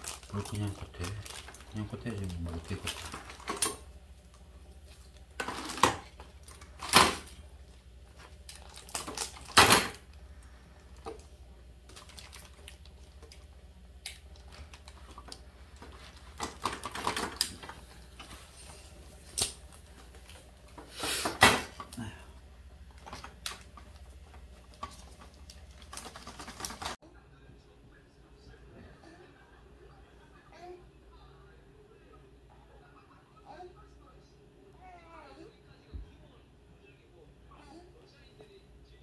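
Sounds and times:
plastic wrapping crinkling: 0:00.0 - 0:07.4, 0:08.1 - 0:10.1, 0:10.8 - 0:13.5, 0:14.1 - 0:20.7, 0:22.9 - 0:27.0
plastic frame parts handled: 0:14.4 - 0:18.6, 0:23.0 - 0:27.0.

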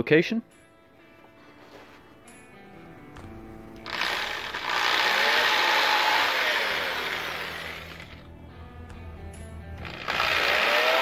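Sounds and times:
cordless drill drilling wood: 0:03.8 - 0:08.2, 0:09.8 - 0:11.0.

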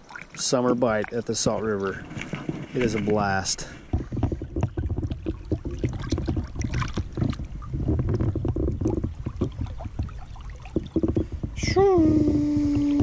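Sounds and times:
water splashes: 0:00.0 - 0:13.0
wind on microphone: 0:03.8 - 0:13.0.

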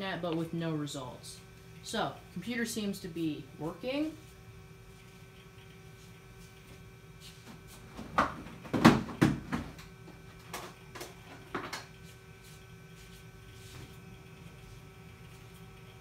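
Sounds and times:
computer humming: 0:00.0 - 0:16.0.

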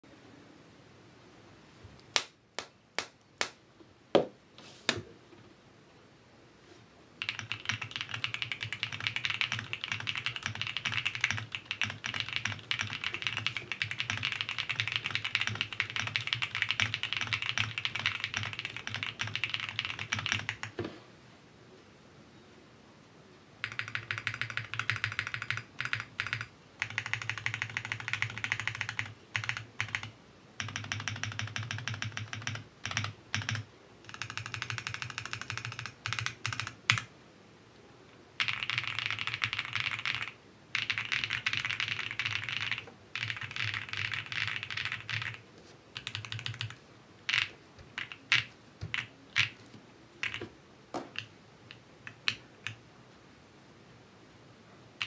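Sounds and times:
mechanical keyboard typing: 0:07.2 - 0:20.8, 0:23.6 - 0:37.1, 0:38.4 - 0:45.4, 0:46.0 - 0:50.5, 0:51.1 - 0:52.8.

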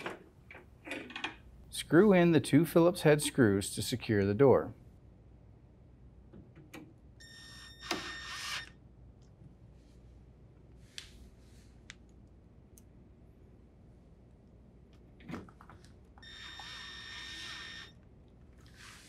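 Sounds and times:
cordless drill driving screw: 0:16.2 - 0:17.9.

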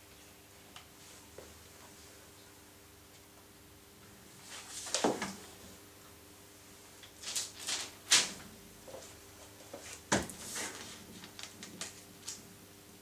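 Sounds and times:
paper rustling and crinkling: 0:07.1 - 0:08.4, 0:09.7 - 0:12.4.

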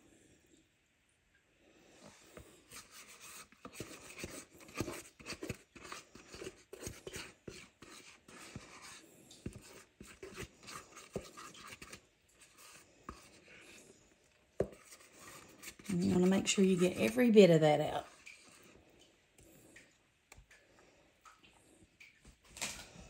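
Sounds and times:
spatula scraping mixing bowl: 0:02.3 - 0:18.8.

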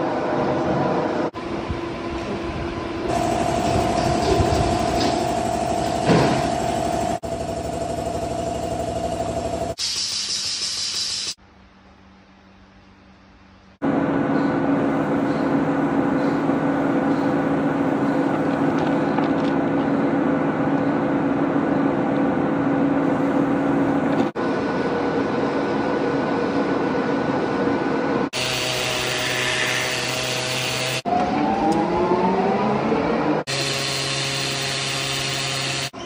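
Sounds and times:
steady machine hum: 0:00.0 - 0:09.8, 0:11.3 - 0:31.0
motor whine rising in pitch: 0:03.0 - 0:09.8, 0:28.4 - 0:36.0
power tool hissing and whining: 0:28.4 - 0:31.0, 0:33.5 - 0:36.0.

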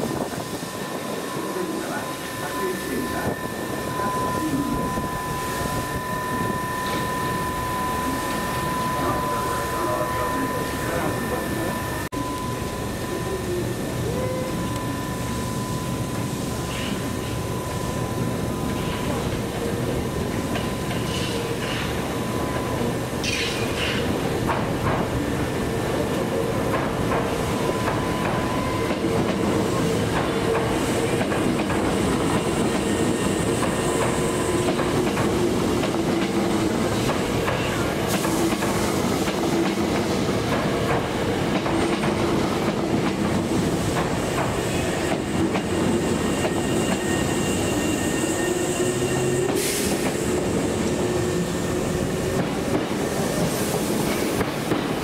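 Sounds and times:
train hum: 0:00.0 - 0:55.0
train wheels clattering: 0:20.3 - 0:25.2, 0:26.1 - 0:55.0.

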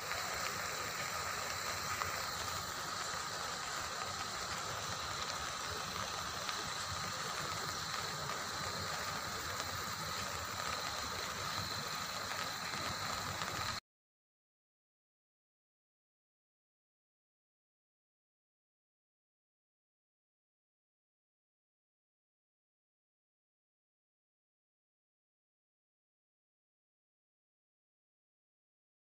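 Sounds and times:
floodwater rushing: 0:00.0 - 0:13.8.

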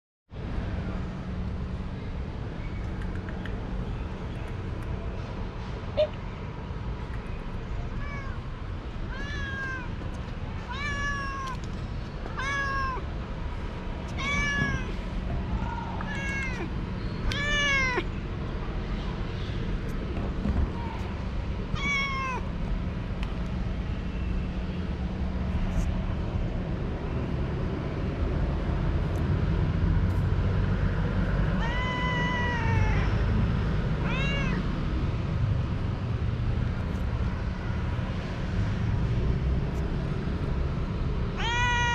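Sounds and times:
cat meowing: 0:07.9 - 0:08.4, 0:09.0 - 0:10.0, 0:10.6 - 0:11.7, 0:12.3 - 0:13.1, 0:14.1 - 0:15.0, 0:16.0 - 0:16.7, 0:17.3 - 0:18.1, 0:21.7 - 0:22.5, 0:31.5 - 0:33.3, 0:34.0 - 0:34.7, 0:41.4 - 0:41.9.

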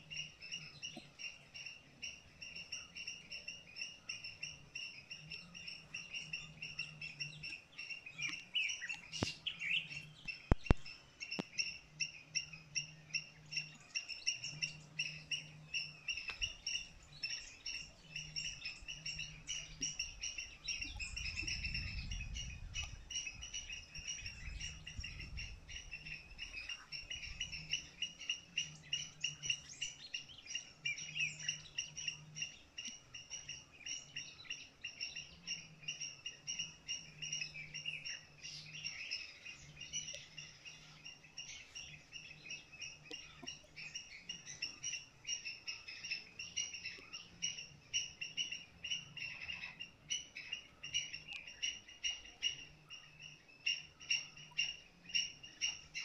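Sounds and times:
birds chirping: 0:00.0 - 0:56.0.

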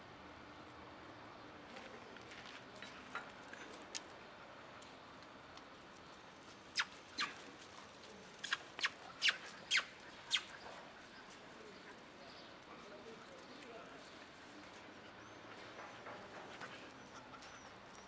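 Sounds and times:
puppies squeaking: 0:08.4 - 0:10.6.

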